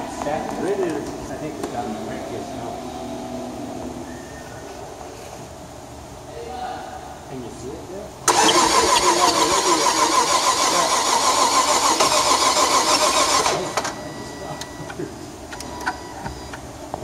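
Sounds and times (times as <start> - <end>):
car engine cranking on starter: 8.3 - 14.0.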